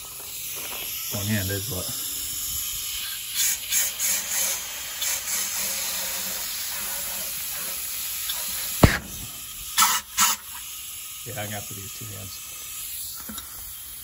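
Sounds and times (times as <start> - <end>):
compressed air hissing: 0.0 - 14.0
sharp knock: 8.8 - 9.3.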